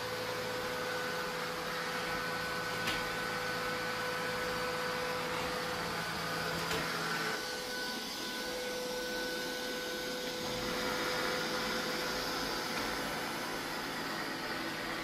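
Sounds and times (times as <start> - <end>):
robot vacuum whirring: 1.6 - 15.0.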